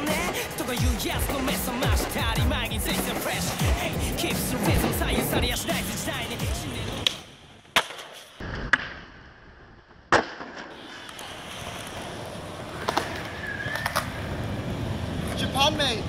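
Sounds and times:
skateboard clacking on concrete: 0.0s - 8.9s, 10.2s - 14.3s
skateboard wheels rolling on concrete: 0.0s - 16.0s.

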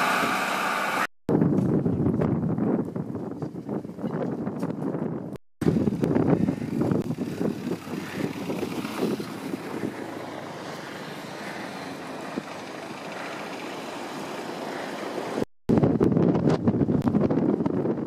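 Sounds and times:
wind buffeting microphone: 1.3s - 18.0s
car driving by on snow: 6.7s - 15.5s.

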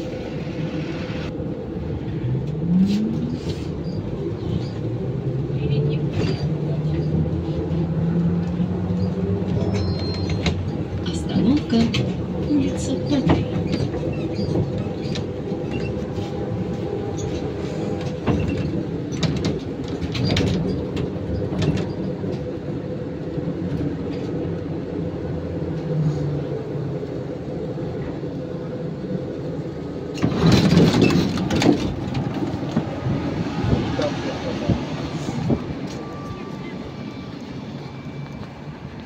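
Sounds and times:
trolleybus cabin hum: 0.0s - 39.0s
folding doors opening with clatter: 17.0s - 22.3s, 30.1s - 32.9s
body and doors rattling: 30.2s - 33.0s.

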